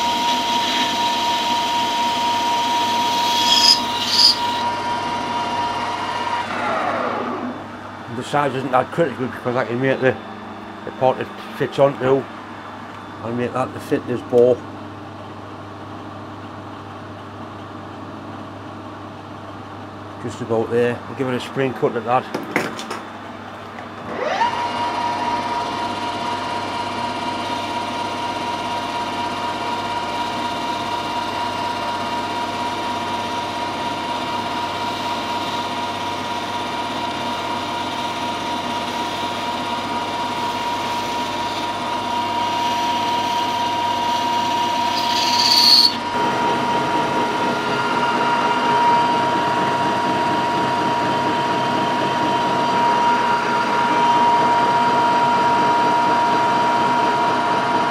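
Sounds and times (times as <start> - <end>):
metal lathe whine: 0.0 - 7.5, 24.0 - 57.9.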